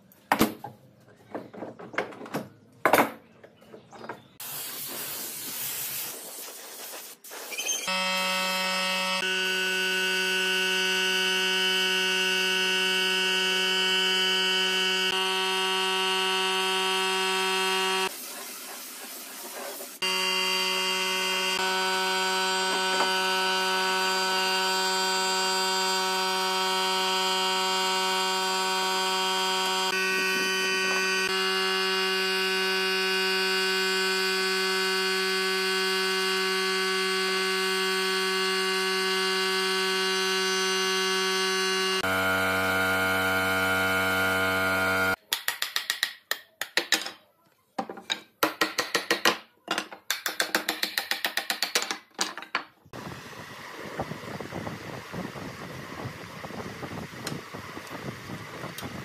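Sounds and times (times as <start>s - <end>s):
electric paint spray gun buzzing: 7.9s - 18.2s, 20.0s - 45.2s, 52.9s - 59.0s.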